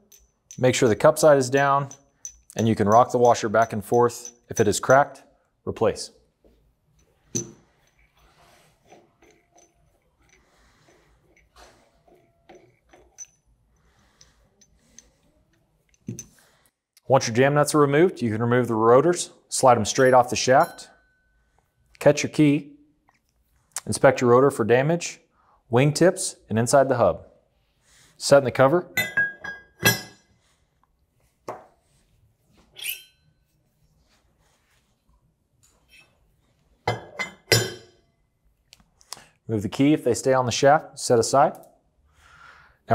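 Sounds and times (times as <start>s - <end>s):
metal rotors clinking on steel: 0.0s - 5.0s, 7.0s - 15.2s, 32.8s - 33.2s.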